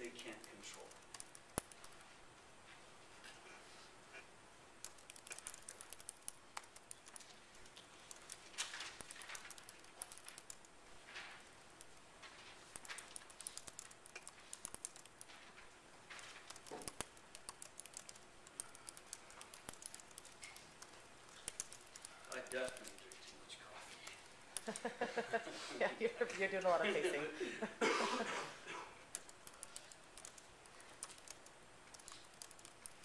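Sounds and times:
keyboard typing: 0:00.0 - 0:02.1, 0:04.8 - 0:25.3, 0:29.0 - 0:33.0
soft rustles: 0:10.8 - 0:13.5, 0:15.2 - 0:16.6.

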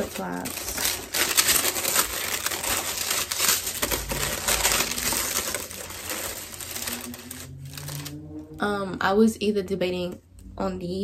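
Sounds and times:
paper packaging rustling: 0:00.0 - 0:08.2.

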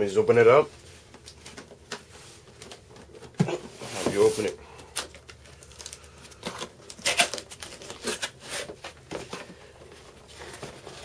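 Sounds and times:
cardboard flaps scraping and rustling: 0:02.2 - 0:04.6, 0:06.8 - 0:11.0
packing tape tearing: 0:03.9 - 0:09.4.

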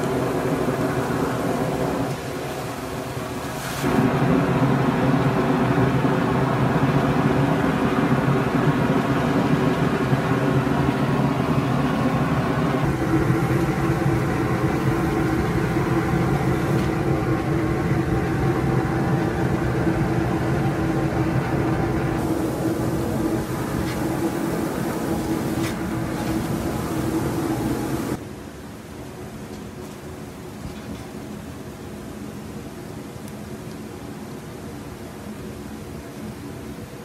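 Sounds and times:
geyser jetting water and steam: 0:00.0 - 0:28.2.

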